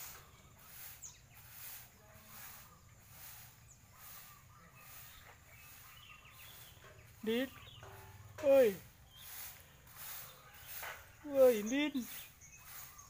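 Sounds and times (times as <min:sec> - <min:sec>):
birds chirping faintly: 0:00.0 - 0:13.0
broom sweeping: 0:00.0 - 0:13.0.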